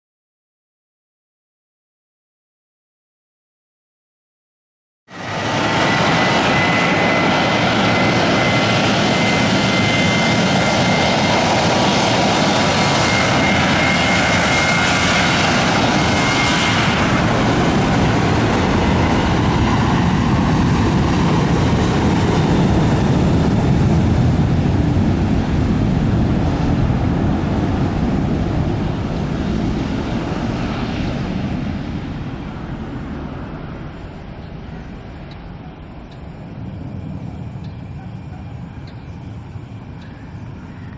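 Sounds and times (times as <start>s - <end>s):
jet engine whine: 5.1s - 40.9s
deep jet rumble: 5.2s - 40.6s.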